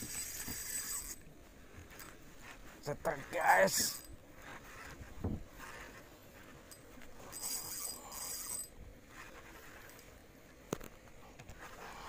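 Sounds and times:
fishing reel whirring: 0.0s - 1.3s, 3.2s - 4.9s, 5.6s - 10.0s
dull thump: 5.2s - 5.5s.

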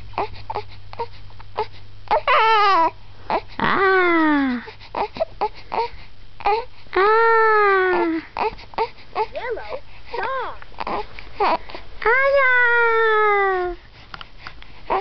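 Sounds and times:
baby crying: 2.1s - 13.8s.

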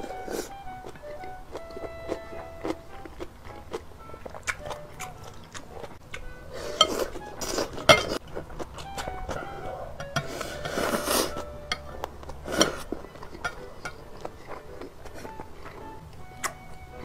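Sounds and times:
loud slurping: 4.5s - 11.5s
chopsticks tapping glass bowls: 7.8s - 14.6s.

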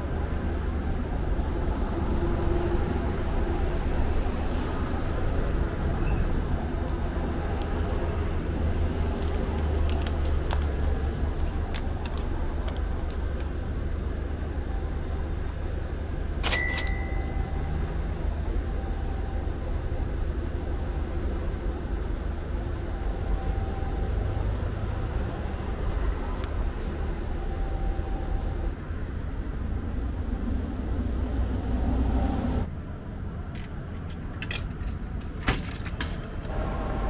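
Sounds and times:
sharp click with ringing tone: 16.4s - 17.7s.

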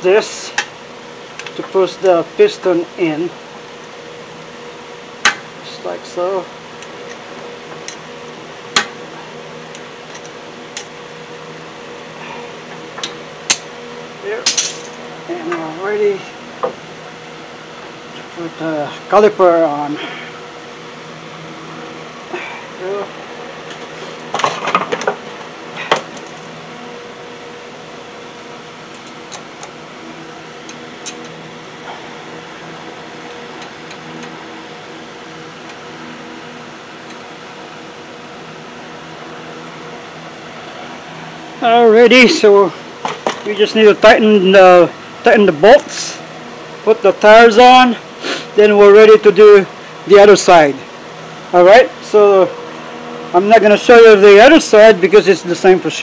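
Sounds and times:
steady mechanical hum: 0.0s - 56.0s
metal clanks from tools: 14.5s - 15.0s.

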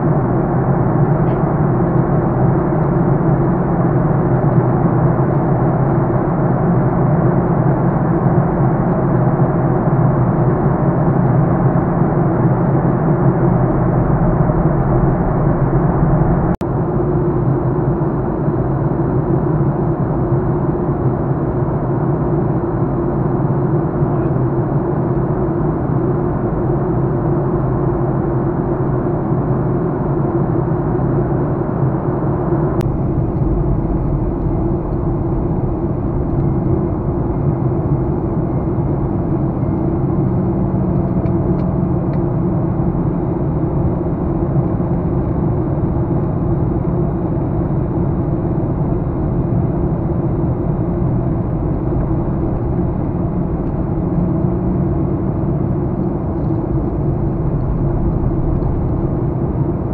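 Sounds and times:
jet engines rumbling: 0.0s - 59.9s
air rushing past fuselage: 32.8s - 40.8s, 49.1s - 59.9s.

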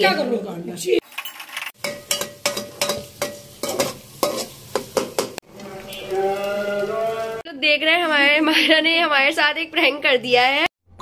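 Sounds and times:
oil sizzling: 1.0s - 7.5s
metal spoon scraping a pot: 1.1s - 6.0s.

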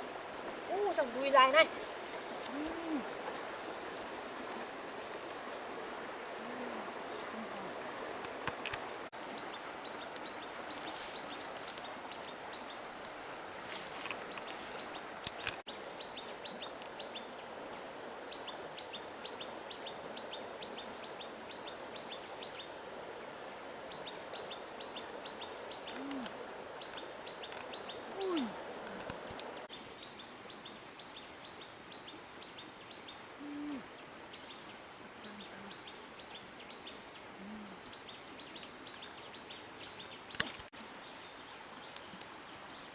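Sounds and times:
steady hiss: 0.0s - 42.9s
plants rustling: 0.7s - 9.3s, 10.4s - 16.7s, 39.6s - 40.7s.

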